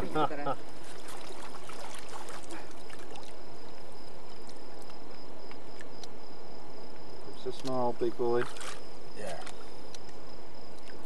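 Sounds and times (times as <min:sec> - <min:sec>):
high insect trill: 0:00.0 - 0:11.0
fish splashing in water: 0:00.8 - 0:04.5, 0:08.3 - 0:08.9.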